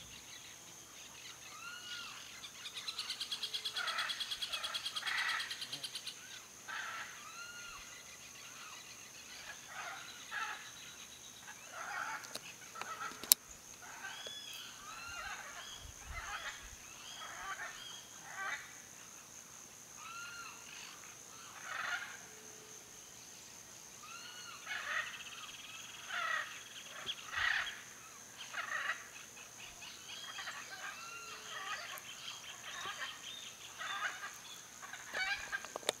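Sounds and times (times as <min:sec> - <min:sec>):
birds chirping: 0:24.0 - 0:36.0.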